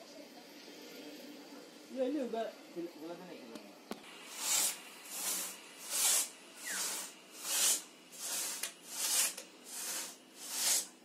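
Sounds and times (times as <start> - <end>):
pit saw cutting log: 4.2 - 11.0.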